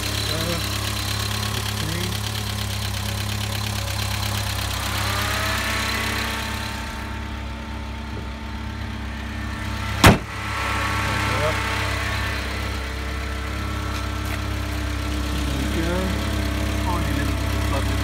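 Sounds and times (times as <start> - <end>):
van engine idling: 0.0 - 18.0
sharp bang: 9.9 - 10.6.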